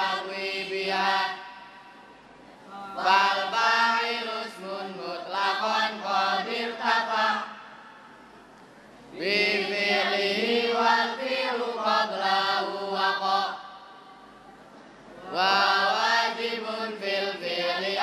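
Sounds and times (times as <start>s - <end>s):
boys chanting in unison: 0.0s - 1.8s, 2.7s - 7.7s, 9.2s - 13.9s, 15.2s - 18.0s.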